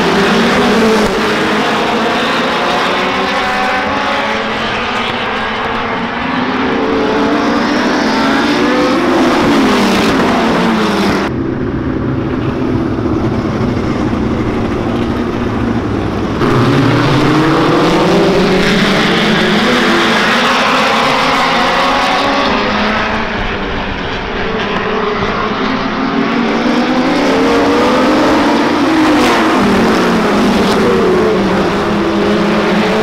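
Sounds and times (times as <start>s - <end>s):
race car engines passing: 0.0s - 33.0s.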